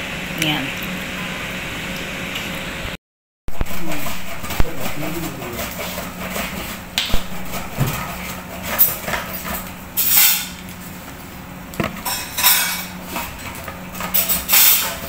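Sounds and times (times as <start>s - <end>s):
low steady hum: 0.0s - 14.2s
kitchen objects knocking and clinking: 3.5s - 9.7s.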